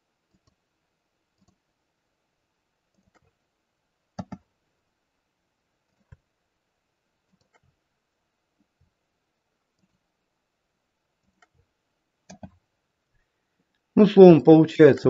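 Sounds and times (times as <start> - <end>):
computer mouse clicks: 0.3 - 0.6, 1.4 - 1.6, 2.9 - 3.4, 4.2 - 4.5, 7.2 - 7.8, 9.7 - 10.0, 11.2 - 12.6
keyboard clicks: 1.4 - 1.6, 2.9 - 3.3, 4.2 - 4.5, 7.3 - 7.7, 12.3 - 12.6.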